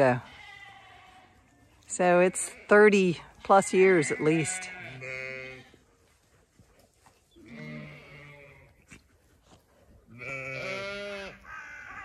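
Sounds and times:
sheep bleating: 0:00.0 - 0:05.8, 0:07.4 - 0:08.8, 0:10.1 - 0:12.0.

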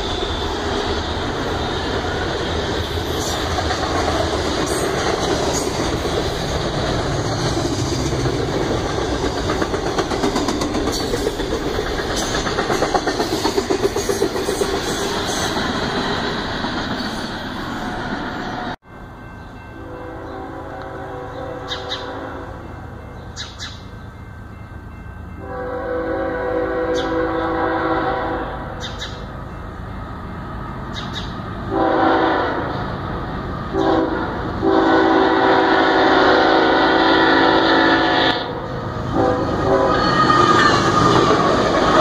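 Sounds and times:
train wheel clatter: 0:00.0 - 0:17.6
locomotive engine noise: 0:00.0 - 0:18.8
locomotive air horn: 0:19.8 - 0:22.6, 0:25.4 - 0:28.8, 0:31.7 - 0:32.8, 0:33.7 - 0:41.4.

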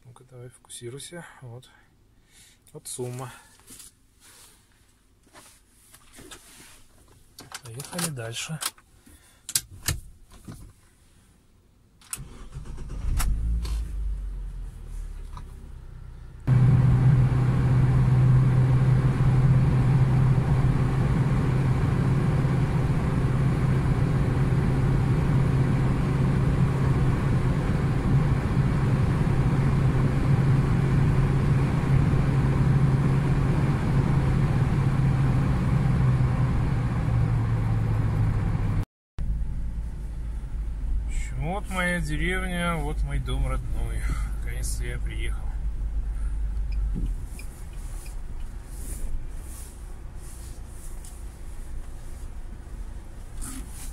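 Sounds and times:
car engine starting and idling: 0:12.0 - 0:53.9
engine and tyres drone in cabin: 0:12.2 - 0:53.9.

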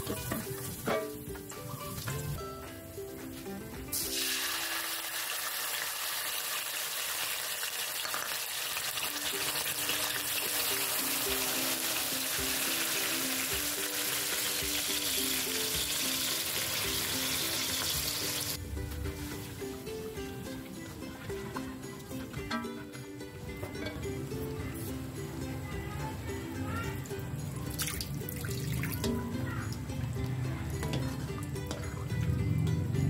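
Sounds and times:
liquid sizzling in hot oil: 0:03.9 - 0:18.6.

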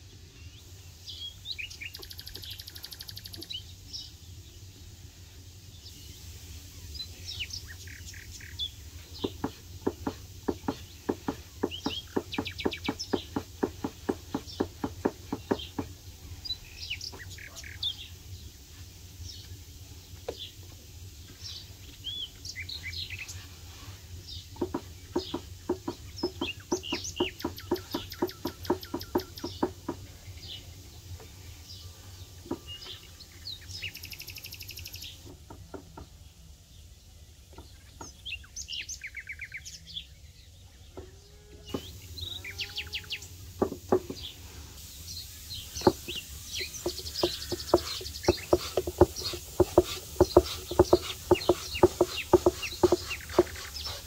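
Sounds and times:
small birds chirping: 0:00.0 - 0:54.0
fast evenly repeated call: 0:45.8 - 0:54.0.

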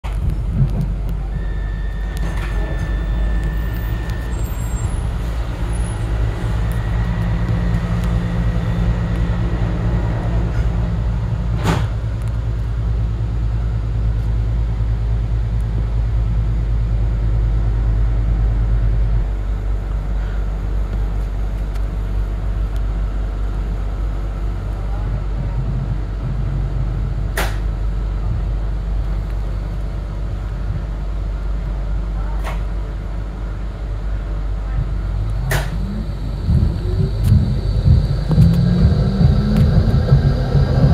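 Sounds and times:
road traffic passing: 0:00.0 - 0:40.9
steady low hum: 0:32.8 - 0:40.9.

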